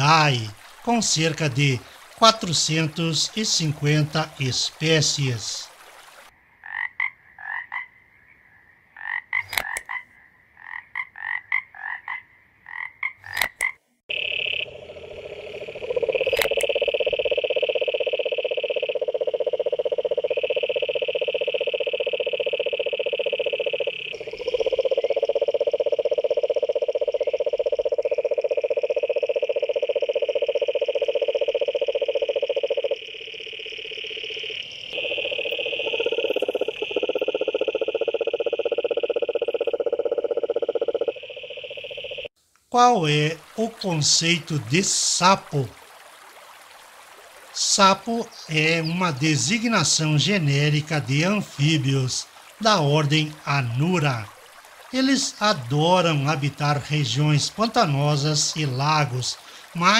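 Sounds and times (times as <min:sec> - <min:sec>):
frogs chirping: 0:00.0 - 0:42.3, 0:43.2 - 0:59.9
frog pulsed trill: 0:14.1 - 0:42.3.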